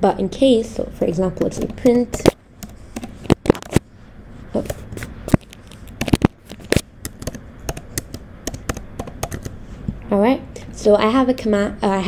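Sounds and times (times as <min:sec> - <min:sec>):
computer keyboard typing: 0:01.4 - 0:02.0, 0:02.6 - 0:03.7, 0:05.5 - 0:09.6.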